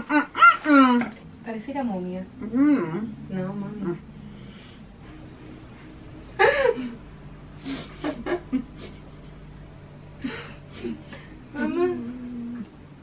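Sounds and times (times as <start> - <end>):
woman moaning: 2.2 - 4.1, 10.2 - 12.7.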